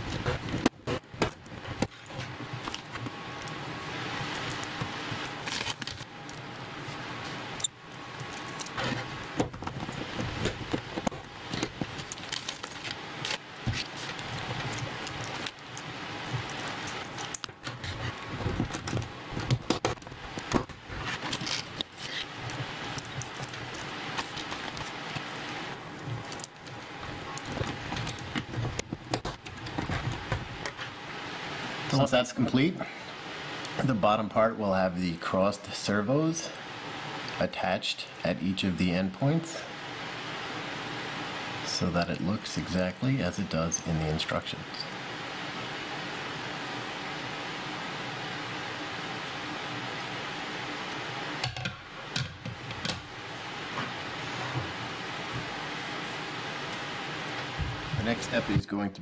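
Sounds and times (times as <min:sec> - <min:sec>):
rustling of small parts: 0:08.1 - 0:31.0.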